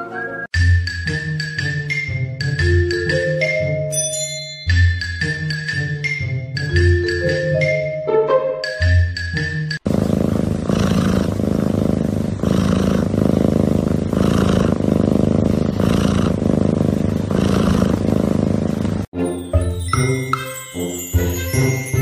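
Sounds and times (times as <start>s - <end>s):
music with bells: 0.6s - 9.8s, 19.2s - 22.0s
cat purring: 9.8s - 19.1s.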